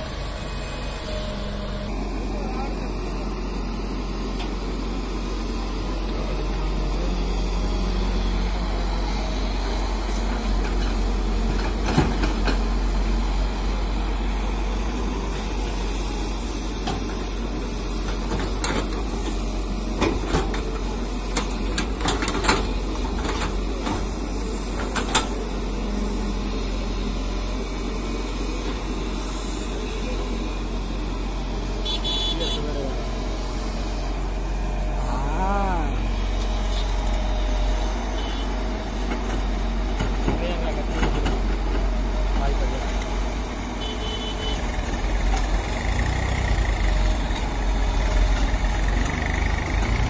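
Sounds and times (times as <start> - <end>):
excavator diesel engine running: 0.0 - 50.0.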